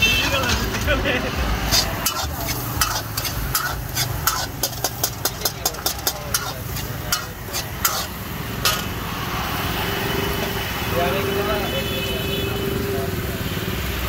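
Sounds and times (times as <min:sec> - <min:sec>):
frying in oil: 0:00.0 - 0:10.9
metal ladle scraping iron pan: 0:01.6 - 0:09.0.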